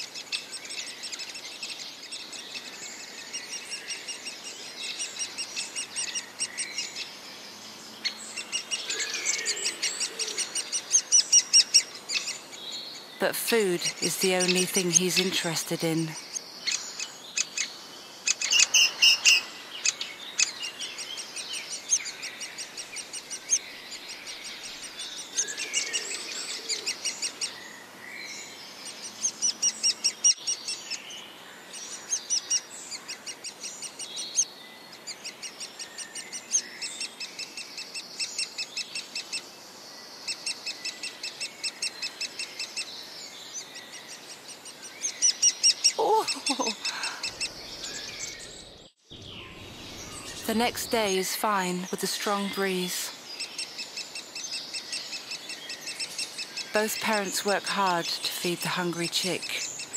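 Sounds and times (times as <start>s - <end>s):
woodpecker chick chirping: 8.0s - 12.4s, 16.1s - 27.6s, 40.3s - 50.8s, 53.2s - 56.8s.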